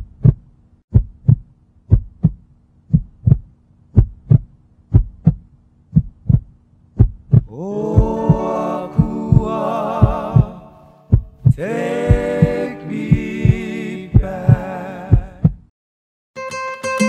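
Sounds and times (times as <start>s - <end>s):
heartbeat-like double thump: 0.0s - 15.7s
sustained chord sliding up: 7.5s - 11.0s, 11.6s - 14.9s.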